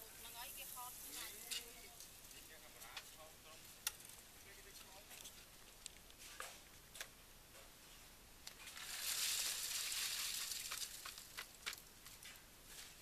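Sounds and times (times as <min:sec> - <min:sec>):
wet concrete sliding from bucket: 0:08.6 - 0:11.4.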